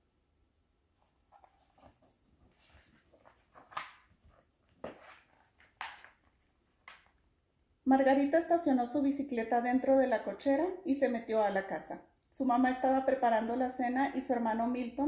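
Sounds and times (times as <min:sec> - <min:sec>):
book pages rustling: 0:01.0 - 0:07.2.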